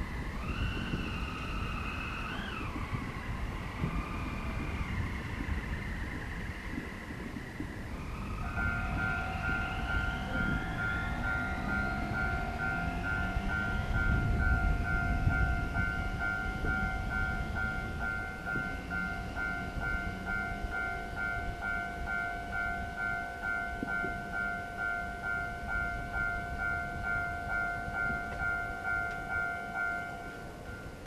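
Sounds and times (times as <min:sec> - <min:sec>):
level crossing bell ringing: 0:08.5 - 0:31.0.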